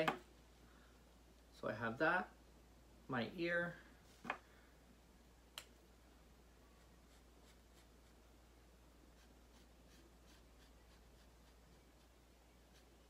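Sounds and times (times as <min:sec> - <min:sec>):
marker scratching on felt: 0:06.8 - 0:08.3, 0:09.1 - 0:13.0.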